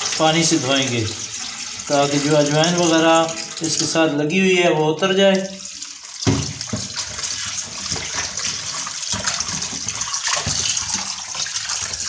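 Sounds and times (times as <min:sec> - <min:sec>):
tap water running into bowl: 0:00.0 - 0:04.0, 0:05.3 - 0:12.0
hands rinsing fish with splashing: 0:05.4 - 0:12.0.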